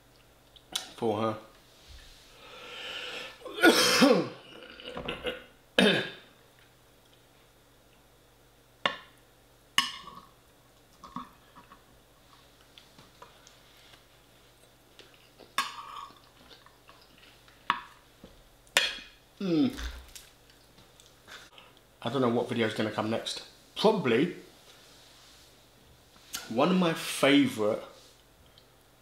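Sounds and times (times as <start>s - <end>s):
mouth or throat sounds: 4.4s - 6.2s, 19.4s - 20.1s.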